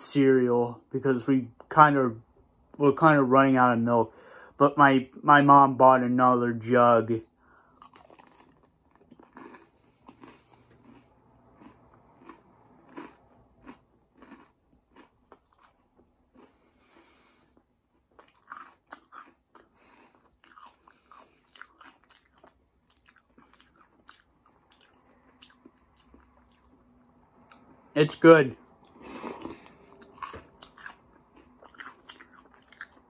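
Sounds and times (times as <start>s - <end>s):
person chewing crunchy cereal: 7.6s - 27.8s, 28.8s - 33.0s.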